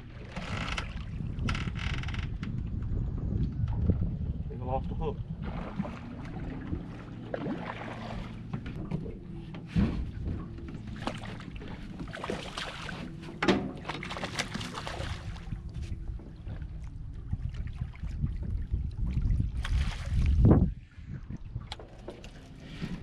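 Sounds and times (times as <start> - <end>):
wind rumble on microphone: 0.0 - 23.0
knocks on boat: 8.4 - 11.3, 13.3 - 14.6.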